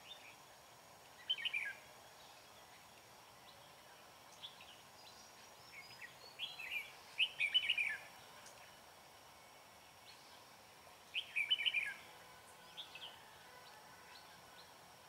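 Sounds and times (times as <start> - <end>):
faint hiss: 0.0 - 15.0
birds singing: 1.1 - 8.6, 11.1 - 14.8.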